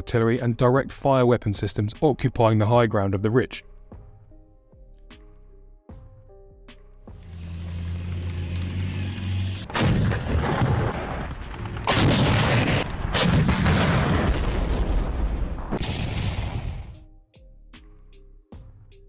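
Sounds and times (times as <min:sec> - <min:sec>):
military vehicle engine drone: 0:07.1 - 0:10.8
heavy explosions: 0:09.6 - 0:17.0.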